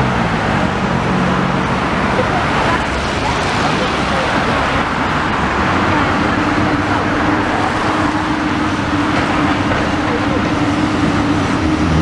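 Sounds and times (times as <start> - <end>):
cars passing close by: 0.0 - 12.0.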